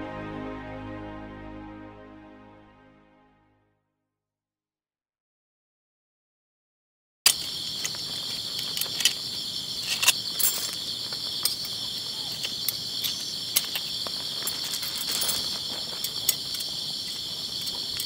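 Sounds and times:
insects chirring: 7.3 - 18.0.

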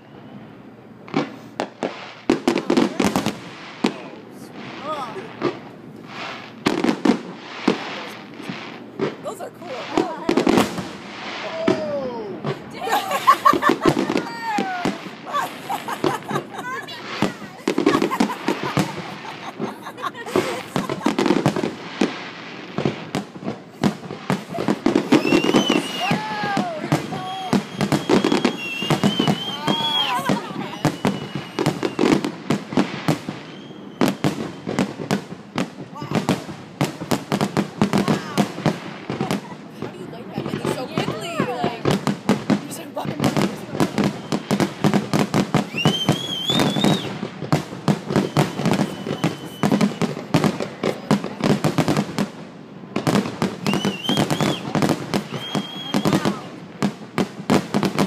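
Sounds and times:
firework whistle: 0.0 - 0.6, 23.7 - 35.0, 43.8 - 47.3, 47.9 - 50.7, 53.5 - 56.6
fireworks bursting: 0.0 - 58.0.

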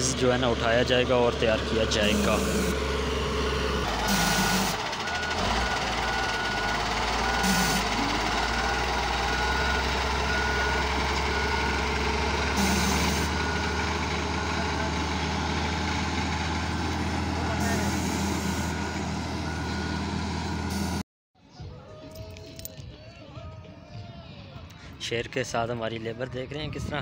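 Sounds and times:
diesel engine running: 0.0 - 21.0
reverse alarm beeping: 2.0 - 15.7, 17.6 - 20.0.

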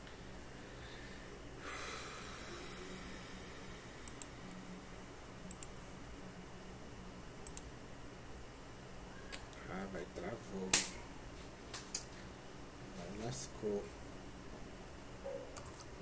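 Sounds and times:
faint steady hiss: 0.0 - 15.2
sharp clicks: 7.4 - 7.7.

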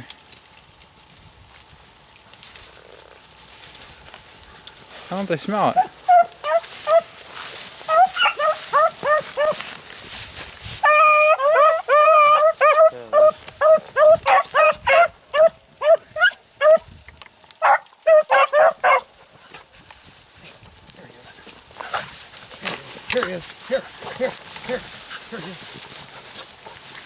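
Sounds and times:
dogs barking and baying: 5.7 - 9.8, 10.7 - 16.9, 17.6 - 19.7, 21.3 - 27.0.

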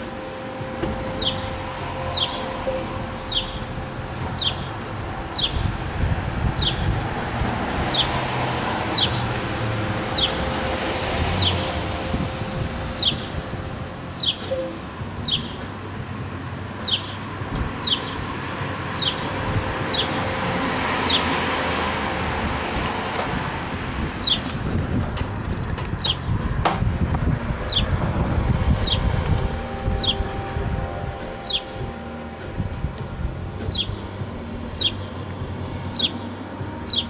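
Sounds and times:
street traffic noise: 0.0 - 37.0
sparrow chirping: 0.3 - 20.3, 21.0 - 21.4, 24.2 - 24.6, 25.9 - 26.5, 27.6 - 28.0, 28.7 - 30.4, 31.2 - 37.0.

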